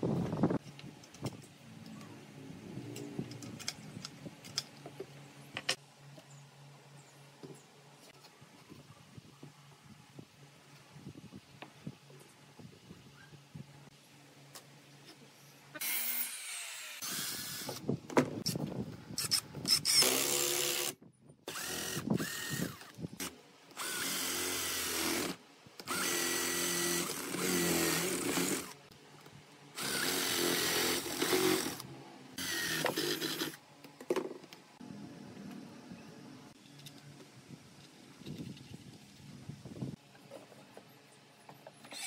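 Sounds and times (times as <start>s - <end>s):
cordless drill drilling into wood: 15.8s - 17.8s, 19.2s - 22.9s, 23.8s - 28.8s, 29.8s - 31.8s, 32.4s - 33.6s.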